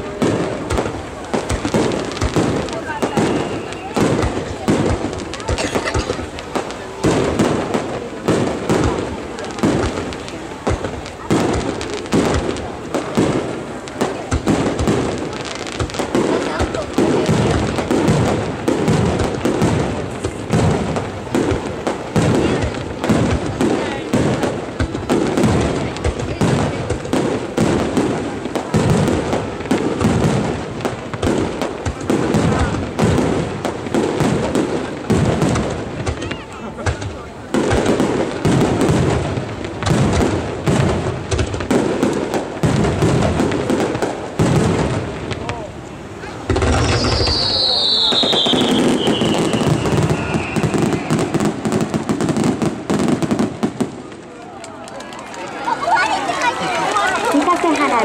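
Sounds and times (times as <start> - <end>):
firework shells bursting: 0.0 - 55.4
firework crackling: 0.0 - 58.0
falling firework whistle: 2.7 - 4.3, 46.2 - 51.8.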